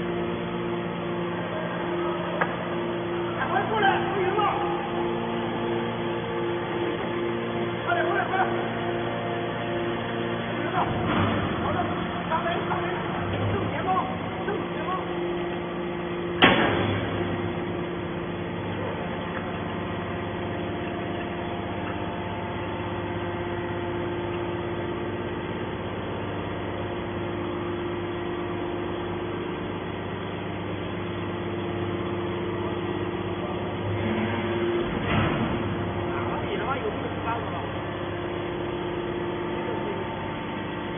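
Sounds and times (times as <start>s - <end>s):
hydraulic power unit humming: 0.0s - 40.9s
sharp bang: 16.4s - 17.2s.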